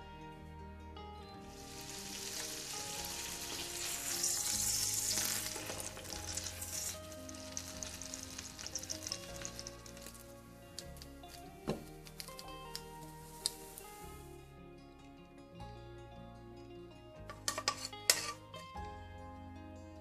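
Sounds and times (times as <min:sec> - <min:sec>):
toast sizzling in butter: 0:01.4 - 0:11.4, 0:12.0 - 0:14.4, 0:17.5 - 0:18.4.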